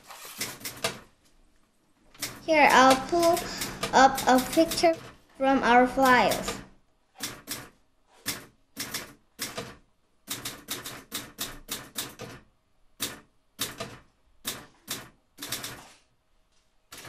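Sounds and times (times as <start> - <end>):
typing on a keyboard: 8.3 - 12.4, 13.0 - 15.9.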